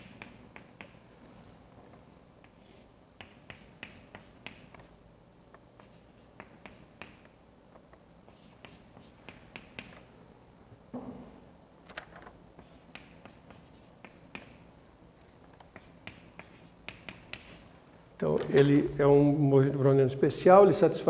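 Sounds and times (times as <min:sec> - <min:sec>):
chalk tapping on chalkboard: 0:00.0 - 0:01.0, 0:03.2 - 0:04.9, 0:05.8 - 0:07.4, 0:08.3 - 0:10.0, 0:12.6 - 0:14.6, 0:15.7 - 0:17.6.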